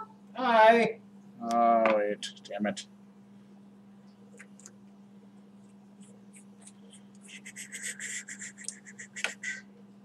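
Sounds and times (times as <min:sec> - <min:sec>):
steady low hum: 0:00.0 - 0:10.0
scratchy rubbing and crackling: 0:05.6 - 0:09.4.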